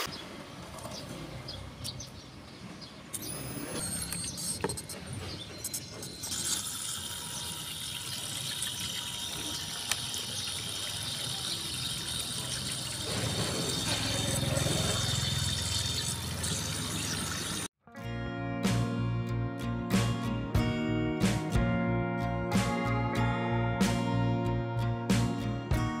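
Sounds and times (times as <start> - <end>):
electric pump running: 5.8 - 17.7
water spraying into a plastic tub: 6.3 - 17.7.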